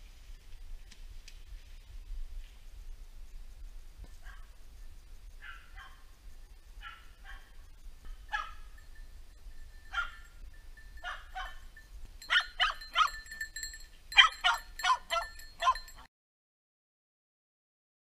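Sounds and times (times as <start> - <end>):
dog barking: 4.2 - 4.5, 5.4 - 6.0, 6.8 - 7.6, 8.3 - 8.7, 9.9 - 10.3, 11.0 - 11.7, 12.3 - 13.2, 14.1 - 16.0.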